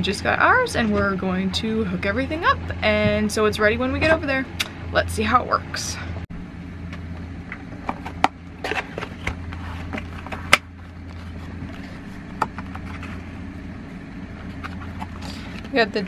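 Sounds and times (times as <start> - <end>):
steady low hum: 0.0 - 16.0
cardboard box rustling and clicking: 7.8 - 13.3.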